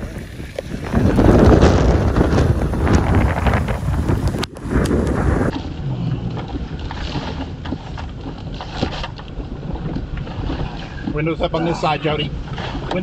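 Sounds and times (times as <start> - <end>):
wind buffeting microphone: 0.0 - 13.0
rain tapping on windshield: 0.5 - 5.6.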